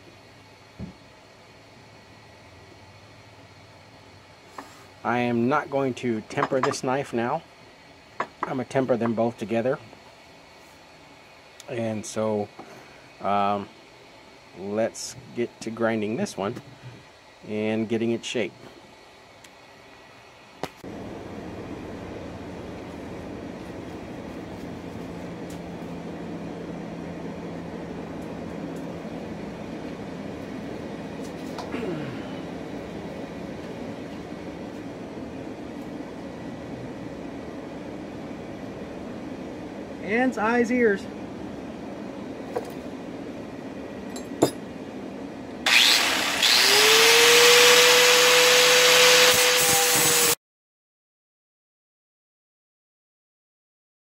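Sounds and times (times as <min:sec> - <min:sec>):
constant low hum: 0:00.0 - 0:46.6
angle grinder whining: 0:45.6 - 0:50.4
loud hissing noise: 0:45.6 - 0:50.4.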